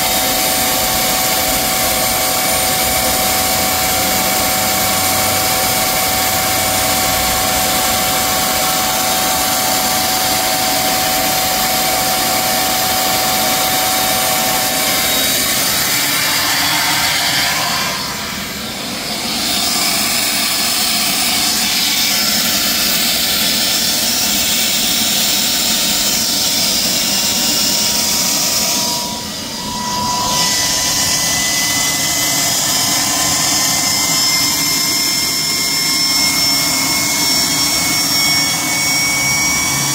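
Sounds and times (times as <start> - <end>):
high-pitched turbine whine: 0.0 - 39.9.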